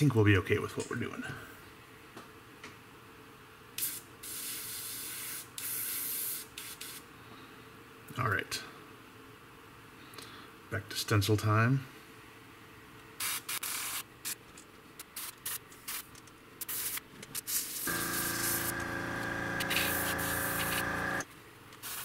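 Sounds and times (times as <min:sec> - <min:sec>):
airbrush spray hiss: 0:03.8 - 0:07.1, 0:13.2 - 0:14.4, 0:15.2 - 0:21.2, 0:21.8 - 0:22.0
air compressor humming: 0:17.8 - 0:21.3.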